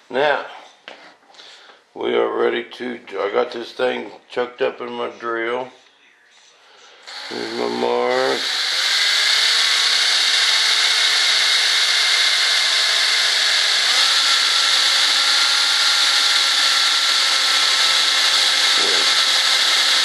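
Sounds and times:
electric drill running: 7.0 - 20.0
hand tool rubbing turning part: 7.1 - 20.0.

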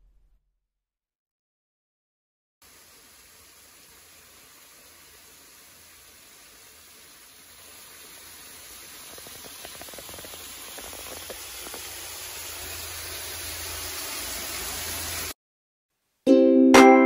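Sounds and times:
small waterfall rushing: 2.6 - 15.4
faint ticks: 9.0 - 11.9.

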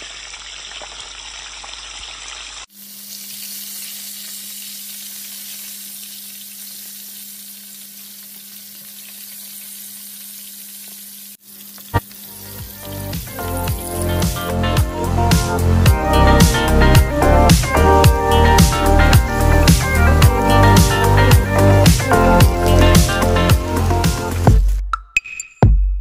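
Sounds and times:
fish frying in hot oil: 0.0 - 14.2.

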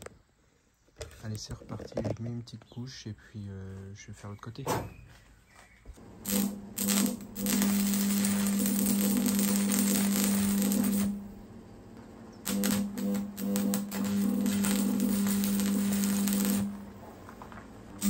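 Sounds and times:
welding arc crackling: 6.0 - 11.4, 12.4 - 18.0
welder buzz: 6.0 - 11.5, 12.3 - 17.0.

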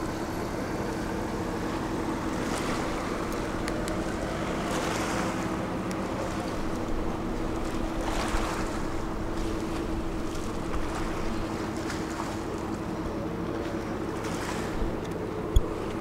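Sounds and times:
ferry engine hum: 0.0 - 16.0
water wash and wind: 0.0 - 16.0.

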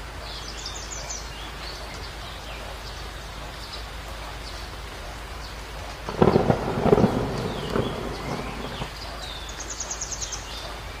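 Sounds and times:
heavy rain: 0.0 - 11.0
small birds chirping: 0.0 - 11.0
thunder crack and rumble: 6.1 - 9.2.

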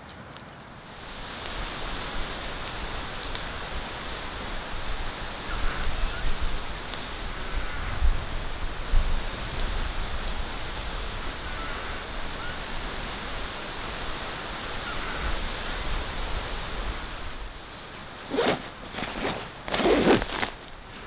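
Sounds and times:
wind: 0.0 - 21.0
loud rustling: 18.0 - 20.8.

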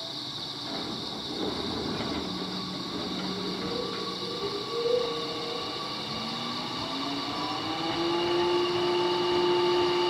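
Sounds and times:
electric train motor hum: 0.0 - 10.0
higher motor tone: 2.0 - 10.0.

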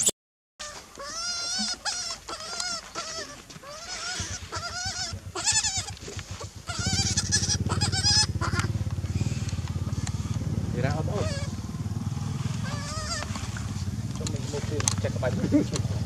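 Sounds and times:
baby monkey crying: 0.6 - 9.3, 11.1 - 11.6, 12.6 - 13.7
low engine drone: 0.8 - 16.0.

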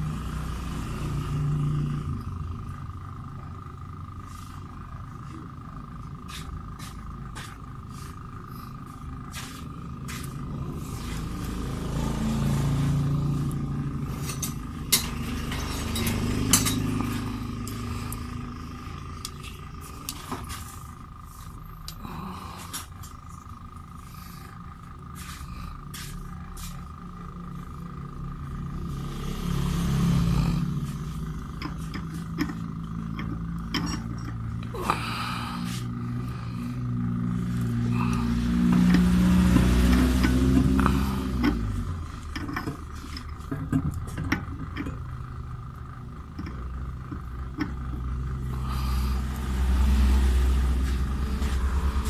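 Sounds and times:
low mechanical hum: 0.0 - 52.0
rumble: 0.0 - 52.0
low rumble: 47.2 - 52.0.

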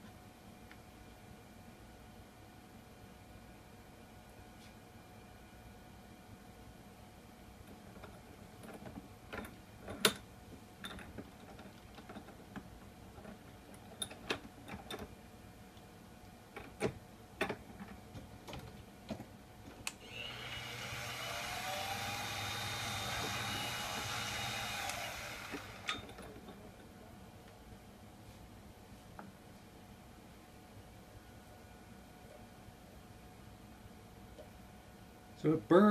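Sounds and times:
clicks and knocks in vise: 16.5 - 19.8
spindle motor whining: 19.9 - 26.2.

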